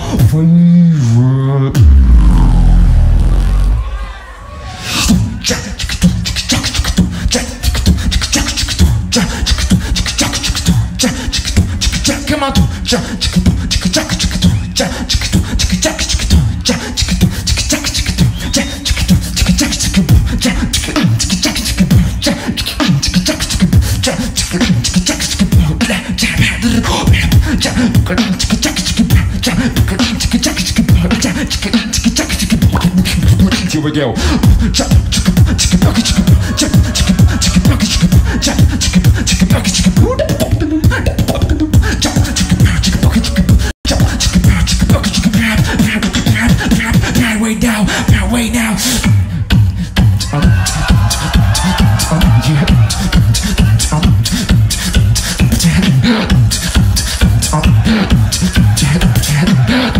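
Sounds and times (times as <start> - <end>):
man beatboxing into microphone: 0.0 - 3.8, 4.8 - 59.9
pulsing bass line: 1.6 - 4.1, 49.3 - 59.9.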